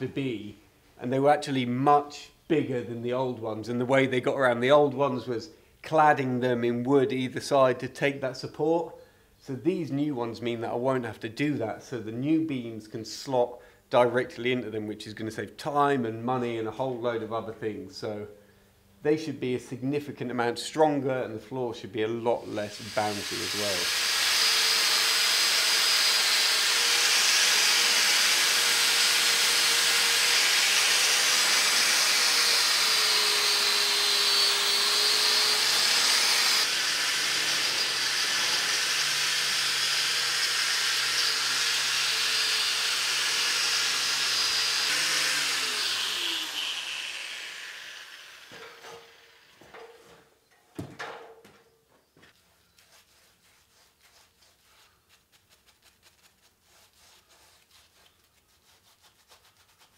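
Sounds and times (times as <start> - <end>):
angle grinder grinding metal: 22.4 - 49.7
grinder spinning down: 22.7 - 49.6.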